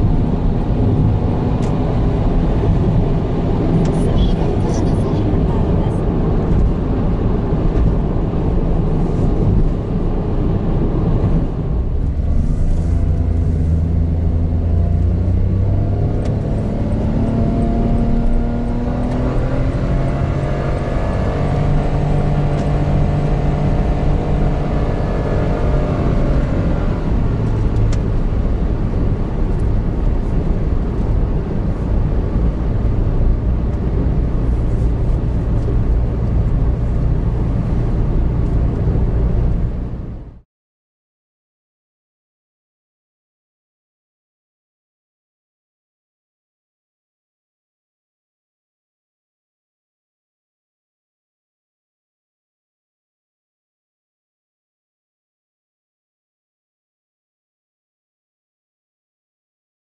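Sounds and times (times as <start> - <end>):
car engine accelerating: 0.0 - 40.4
road and tyre rumble: 0.0 - 40.4.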